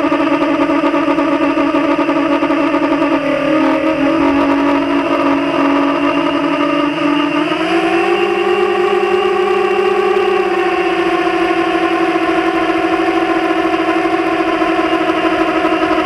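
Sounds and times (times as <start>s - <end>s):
drone propellers whining: 0.0s - 16.0s.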